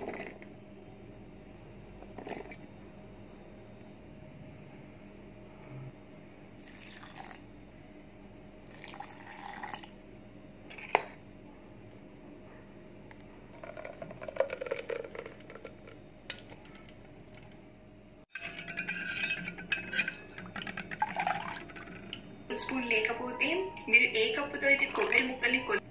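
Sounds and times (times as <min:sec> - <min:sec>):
kitchen vessel handling: 0:18.4 - 0:21.8.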